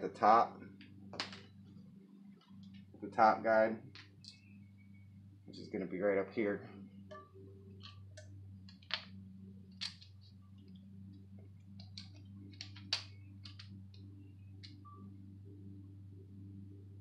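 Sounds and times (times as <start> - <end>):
steady low hum: 0.0 - 17.0
metallic clicks and taps: 11.8 - 14.0.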